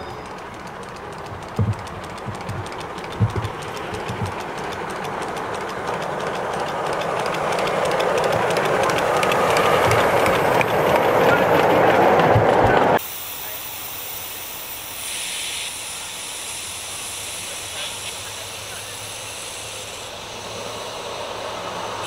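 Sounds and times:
wheels clicking over rail joints: 0:00.0 - 0:13.0
miniature steam train passing: 0:00.0 - 0:22.0
heavy knocks: 0:01.2 - 0:04.4.

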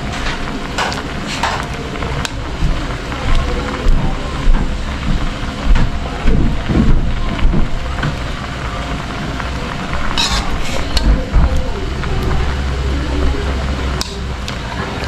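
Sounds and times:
low rumble: 0:01.8 - 0:15.0
ladle scraping and knocking a wok: 0:09.9 - 0:11.4.

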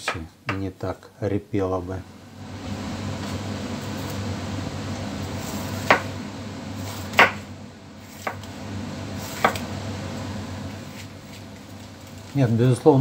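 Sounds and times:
steady hum: 0:01.6 - 0:13.0
knife cutting onion: 0:05.4 - 0:06.2, 0:06.8 - 0:08.5, 0:09.2 - 0:09.7.

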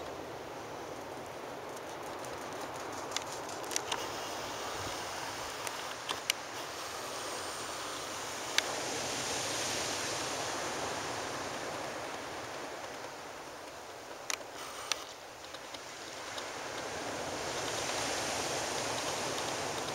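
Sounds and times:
sharp clicks: 0:01.8 - 0:04.3, 0:05.0 - 0:06.9.

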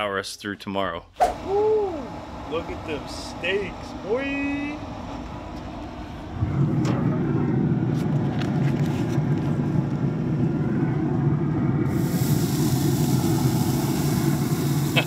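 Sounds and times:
pellet grill humming: 0:01.2 - 0:15.0
steady hiss: 0:01.5 - 0:05.2, 0:11.9 - 0:15.0.

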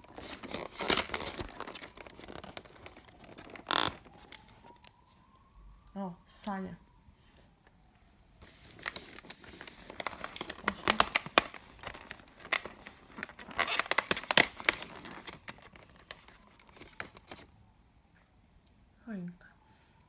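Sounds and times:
cardboard tearing: 0:00.0 - 0:04.5, 0:08.7 - 0:17.4
plastic tray crinkling: 0:00.0 - 0:04.9, 0:08.7 - 0:17.5.

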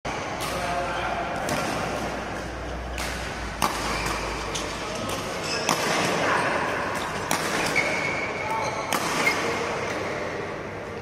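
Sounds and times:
rackets hitting shuttlecock: 0:00.4 - 0:10.2.

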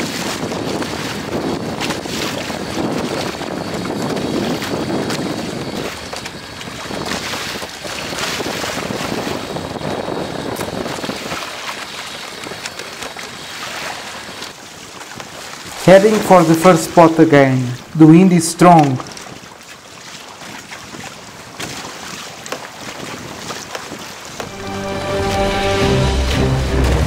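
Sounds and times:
wind buffeting microphone: 0:00.0 - 0:16.6, 0:20.2 - 0:24.5
water splashing against kayak hull: 0:00.0 - 0:24.7.

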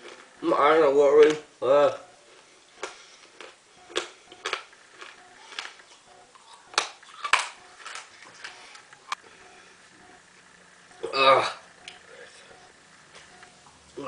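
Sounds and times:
person crunching hard mints: 0:00.0 - 0:00.4, 0:02.3 - 0:09.0.

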